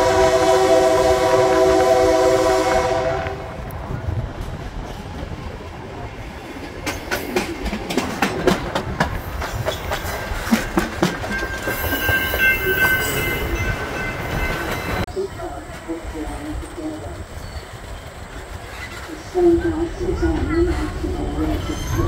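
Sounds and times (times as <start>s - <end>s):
train wheels rumbling on rails: 0.0s - 22.0s
wheels clacking over rail joints: 4.3s - 22.0s
high wheel squeal: 11.3s - 15.1s, 20.5s - 22.0s.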